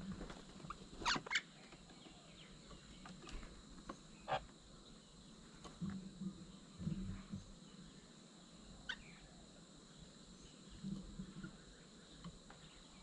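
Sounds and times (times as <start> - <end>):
myna bird calls: 0.6 - 3.5, 4.1 - 4.6, 8.8 - 9.5.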